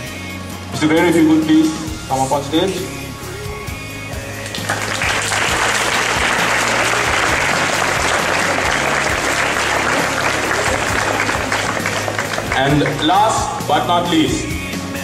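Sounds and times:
audience applauding: 0:04.4 - 0:13.4.

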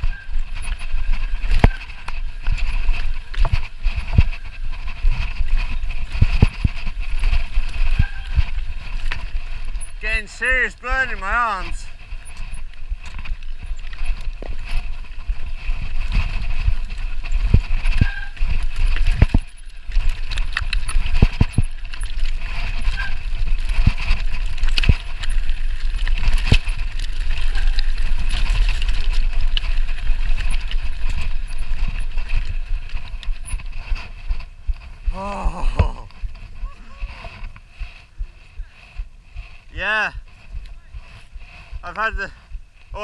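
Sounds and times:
wind buffeting microphone: 0:00.0 - 0:10.7
mountain bike rattling: 0:00.0 - 0:43.0.

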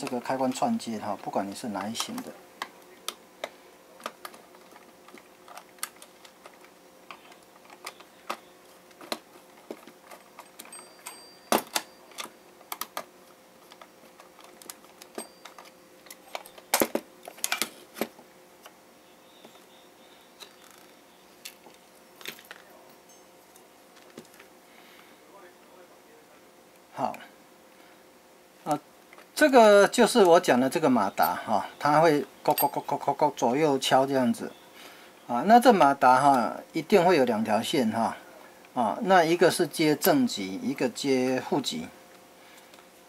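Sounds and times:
plastic clicks and snaps: 0:01.8 - 0:10.7.

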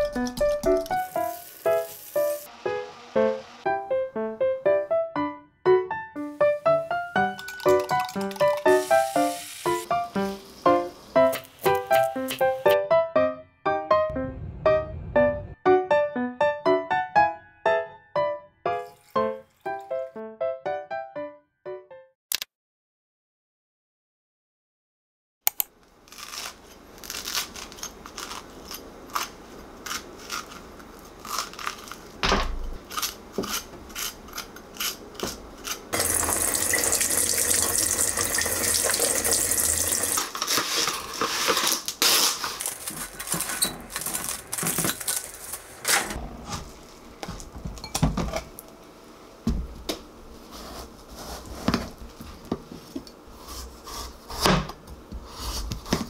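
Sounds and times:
knife cutting watermelon rind: 0:26.1 - 0:32.1, 0:32.8 - 0:36.0, 0:53.3 - 0:56.0
kitchen tap running: 0:36.0 - 0:41.1.

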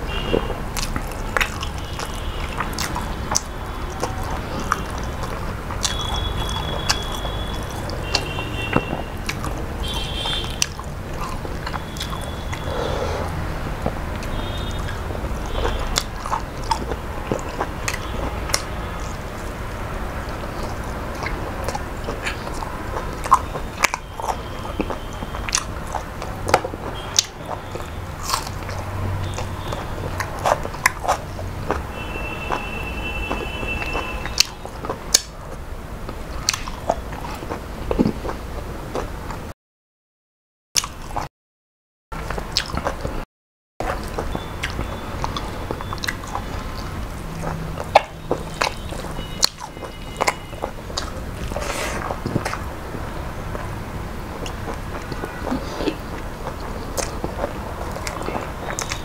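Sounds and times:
person chewing food: 0:00.1 - 0:39.5, 0:40.8 - 0:41.3, 0:42.2 - 0:43.2, 0:43.8 - 0:59.0.

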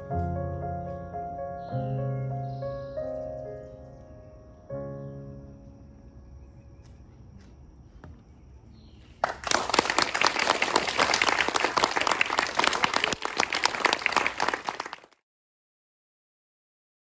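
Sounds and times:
audience applauding: 0:09.2 - 0:15.2.

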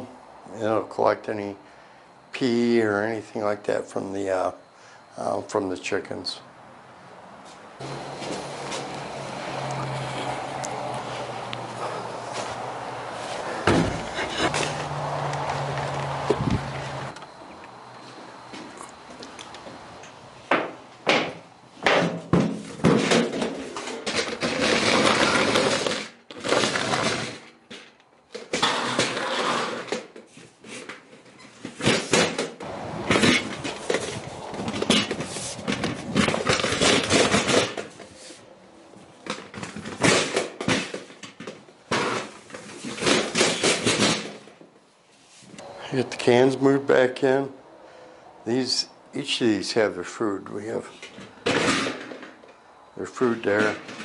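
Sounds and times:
metal scraping on concrete: 0:07.8 - 0:17.2.

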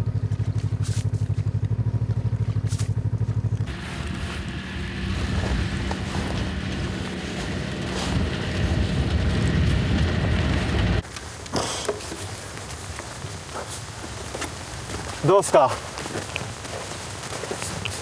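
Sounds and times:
low pulsing mechanical drone: 0:00.0 - 0:11.0
snowmobile engine running: 0:00.0 - 0:18.0.

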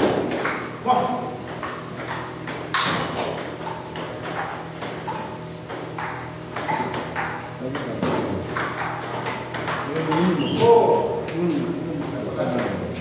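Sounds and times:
table tennis balls clicking: 0:00.0 - 0:10.4.

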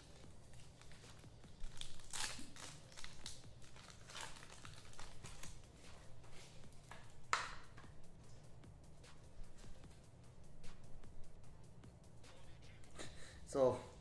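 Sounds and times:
card packs crinkling and rustling: 0:00.0 - 0:07.5.

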